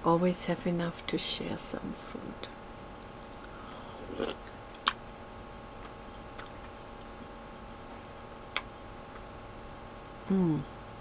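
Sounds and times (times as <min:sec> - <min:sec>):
faint steady hum: 0:00.0 - 0:11.0
slurp from spoon: 0:04.0 - 0:04.4.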